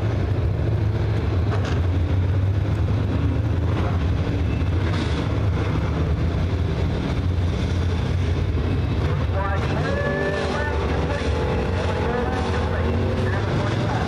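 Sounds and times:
race car engines droning: 0:00.0 - 0:14.0.

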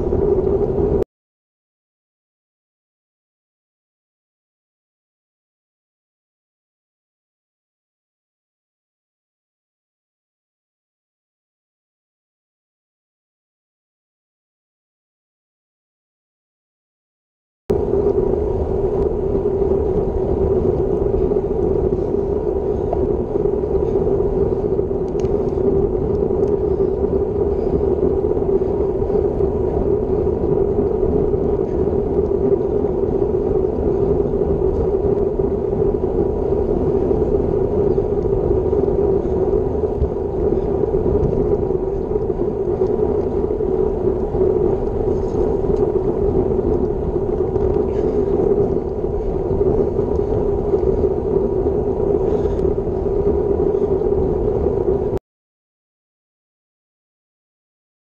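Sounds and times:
bicycle tyre and road noise: 0:00.0 - 0:01.0, 0:17.7 - 0:55.2
wind rushing over microphone: 0:00.0 - 0:01.0, 0:17.7 - 0:55.2.

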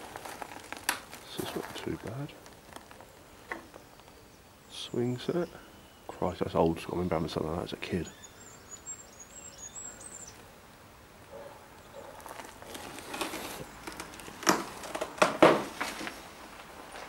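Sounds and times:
footsteps crunching over debris: 0:00.0 - 0:04.2, 0:11.8 - 0:17.0.

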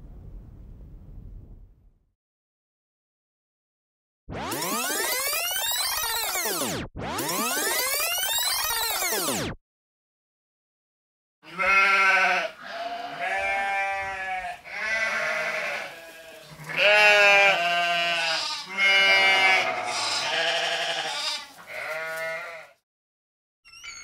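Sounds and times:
livestock bleating: 0:11.4 - 0:22.8.

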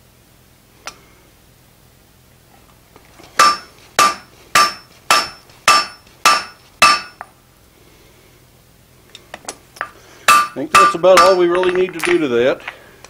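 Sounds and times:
hammer blows ringing on anvil: 0:03.4 - 0:07.2, 0:10.3 - 0:12.2.

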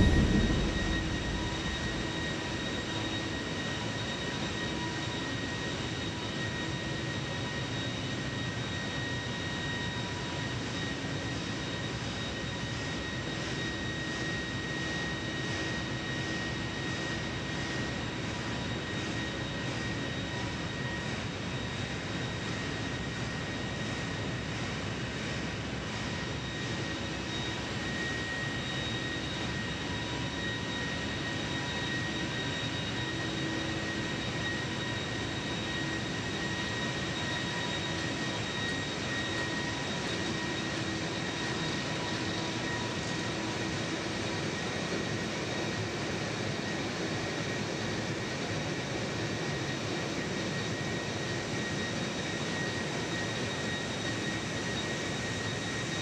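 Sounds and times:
high whining tones: 0:00.0 - 0:03.4
ship engine room machinery din: 0:00.0 - 0:03.4.

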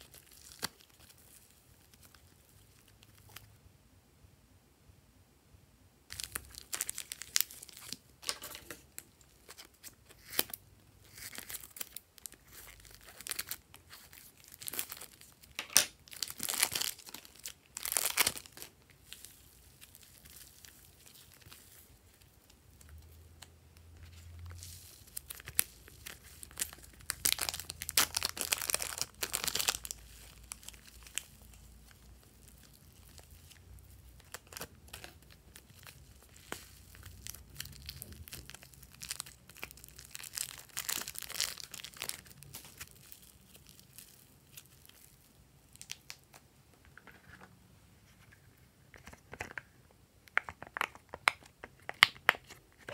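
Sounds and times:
plastic wrappers crinkling and tearing: 0:00.0 - 0:03.5, 0:06.1 - 0:46.4, 0:50.3 - 0:52.9.

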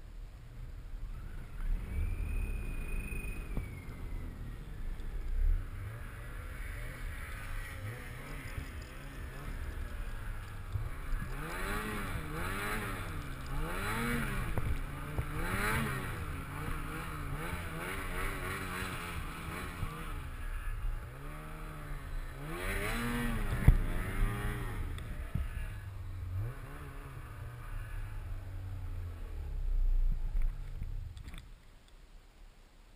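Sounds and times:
snowmobile engine revving: 0:01.0 - 0:30.7.

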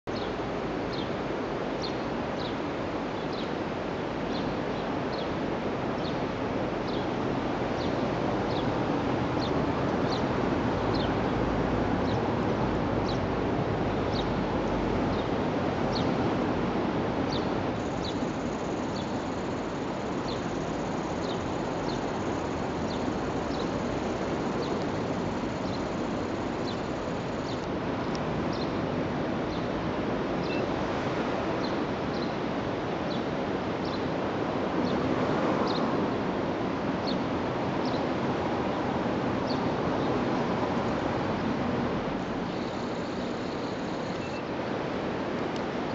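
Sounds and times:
wind: 0:00.0 - 0:45.9
bird chirping: 0:17.3 - 0:27.6, 0:42.5 - 0:44.5
faint thin high whine: 0:42.5 - 0:44.6.

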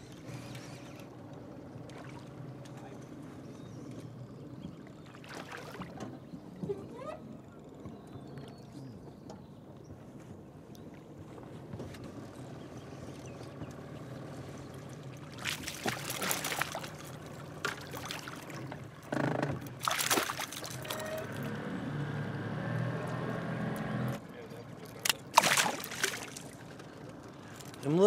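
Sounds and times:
boat motor humming: 0:00.0 - 0:28.0
fish thrashing and splashing: 0:15.2 - 0:21.5, 0:24.8 - 0:26.8.

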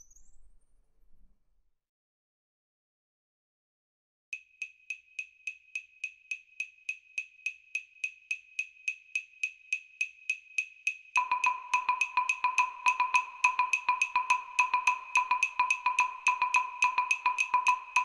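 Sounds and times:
repeating high ticking note: 0:11.2 - 0:18.0.

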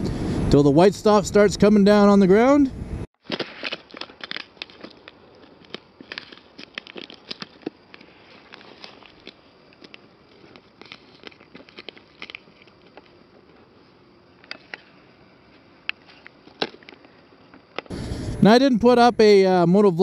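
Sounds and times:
ice cracking under feet: 0:03.2 - 0:13.5.

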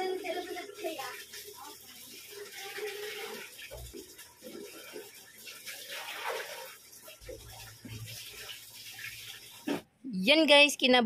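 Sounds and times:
thick liquid swishing and sloshing: 0:03.1 - 0:09.9.

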